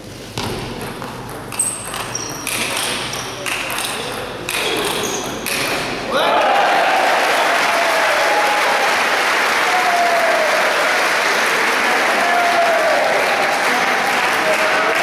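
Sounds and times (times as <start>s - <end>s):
crowd calling out: 6.1s - 15.0s
crowd applauding: 6.2s - 15.0s.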